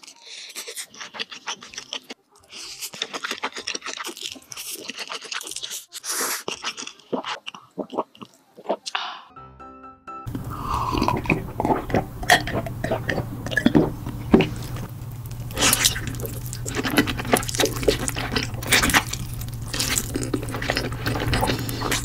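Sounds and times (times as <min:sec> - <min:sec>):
slurping and chewing: 0:00.0 - 0:09.3, 0:10.3 - 0:22.0
mouth clicks and smacks: 0:02.8 - 0:09.1
steady low hum: 0:10.3 - 0:22.0.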